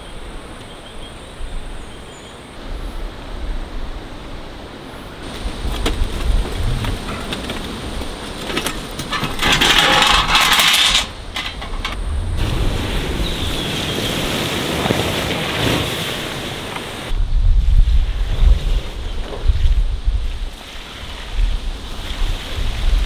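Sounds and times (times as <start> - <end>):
ash and coals clattering: 5.3 - 12.0.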